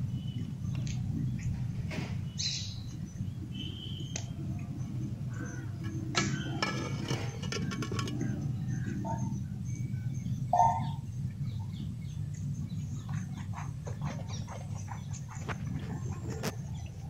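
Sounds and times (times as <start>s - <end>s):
birds chirping: 0.0s - 17.0s
pot boiling with low rumble: 0.0s - 17.0s
metal lid clattering on pot: 5.8s - 8.5s.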